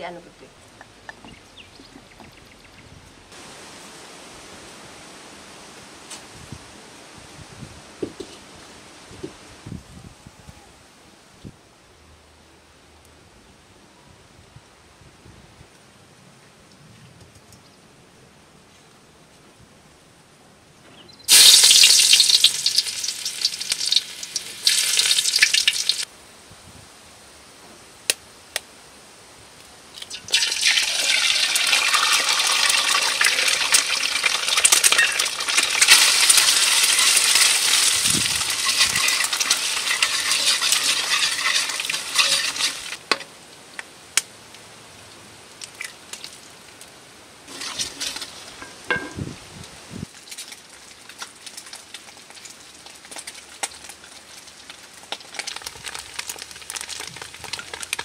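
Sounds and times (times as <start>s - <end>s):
egg sizzling in hot oil: 21.3s - 26.1s, 30.0s - 43.2s, 47.5s - 49.0s, 50.2s - 58.0s
spatula scraping a wok: 35.8s - 43.2s, 47.5s - 49.1s.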